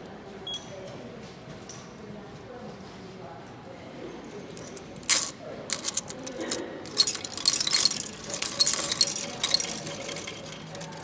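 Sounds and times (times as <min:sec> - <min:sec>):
coins clinking through coin slot: 0:04.4 - 0:11.0.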